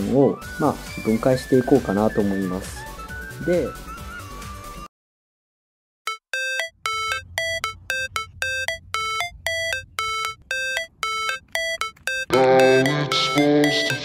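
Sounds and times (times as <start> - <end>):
bleepy synth music: 6.1 - 14.0.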